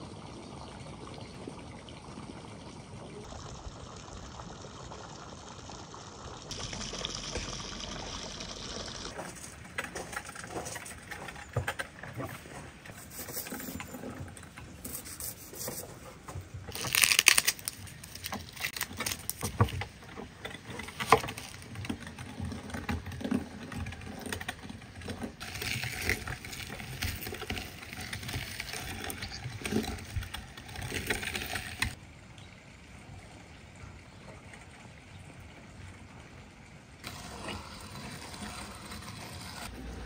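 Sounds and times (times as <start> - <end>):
hand-cranked meat grinder turning: 9.0 - 14.9, 16.7 - 32.0.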